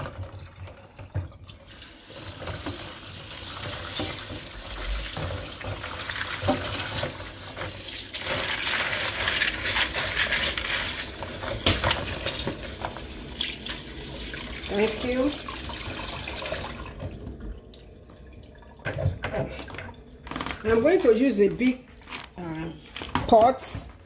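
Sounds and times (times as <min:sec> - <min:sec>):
tap water running: 0:00.0 - 0:22.4
hand stirring beans in water: 0:04.8 - 0:13.8.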